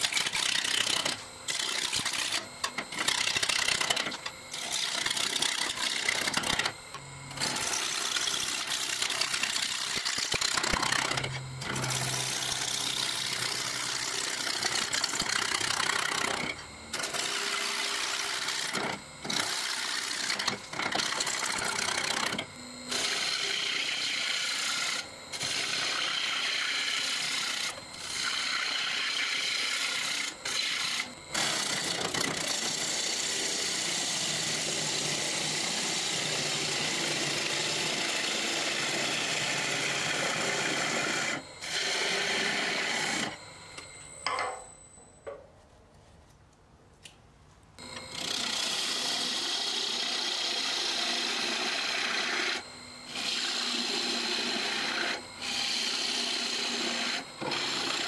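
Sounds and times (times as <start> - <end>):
thin high whine: 0.0 - 33.8, 34.4 - 46.3, 47.8 - 58.0
gouge scraping on wood lathe: 7.4 - 32.8, 35.7 - 43.4, 48.0 - 58.0.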